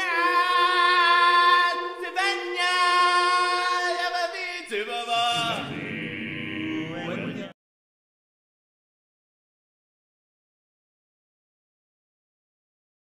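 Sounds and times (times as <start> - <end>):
person singing long notes: 0.0 - 4.2.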